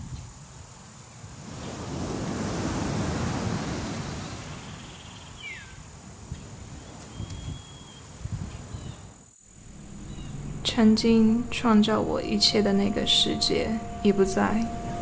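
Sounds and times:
sea surf washing in: 0:01.2 - 0:04.8
wind rumbling on microphone: 0:05.7 - 0:15.0.

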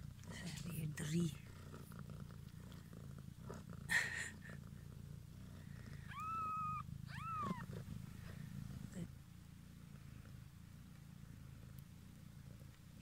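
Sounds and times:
cat purring: 0:00.0 - 0:13.0
kitten mewing: 0:06.0 - 0:07.9.

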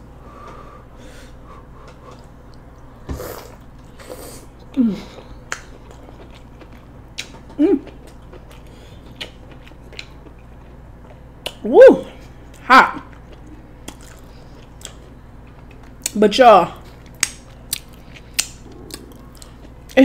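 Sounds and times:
wet chewing and smacking: 0:04.6 - 0:11.6, 0:12.4 - 0:16.2, 0:16.8 - 0:20.0.

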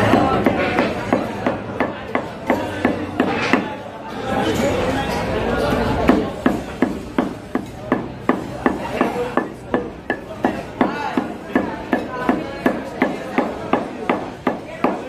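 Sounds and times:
cleaver chopping meat on wood: 0:00.0 - 0:03.7, 0:06.1 - 0:15.0.

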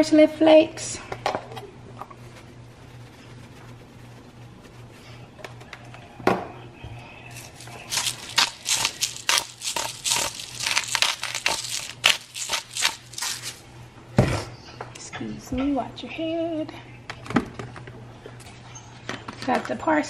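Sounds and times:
seasoning grinder crunchy rattling: 0:07.3 - 0:13.6.

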